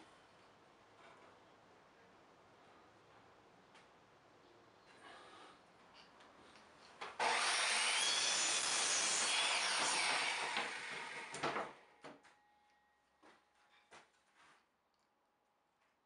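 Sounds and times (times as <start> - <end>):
miter saw cutting wood: 7.2 - 11.6.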